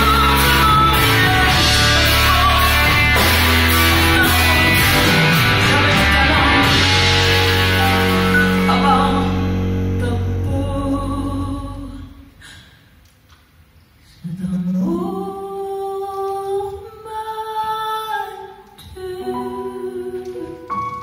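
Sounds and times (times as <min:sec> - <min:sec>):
live band music: 0:00.0 - 0:12.0
woman singing long notes: 0:03.8 - 0:12.4.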